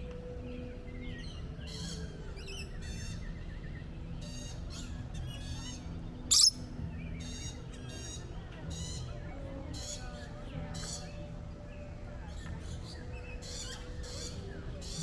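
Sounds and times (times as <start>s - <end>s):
lorikeets chattering: 4.2s - 6.6s.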